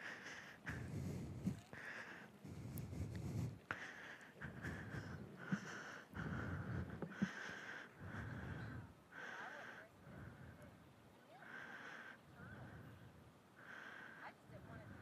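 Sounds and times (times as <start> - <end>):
person breathing: 0.0 - 15.0.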